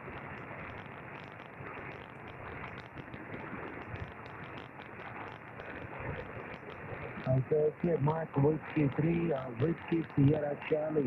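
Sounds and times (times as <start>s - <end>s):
radio static hiss: 0.0s - 11.0s
static crackles: 0.0s - 11.0s.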